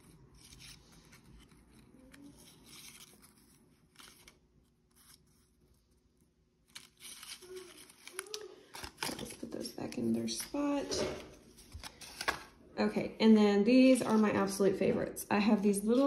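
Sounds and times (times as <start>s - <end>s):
paper rustling and tapping: 10.3s - 12.5s.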